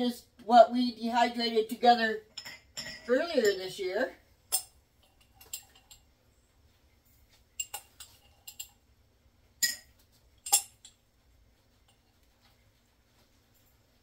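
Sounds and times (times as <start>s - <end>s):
teaspoon clinking against glass jar: 9.6s - 10.9s.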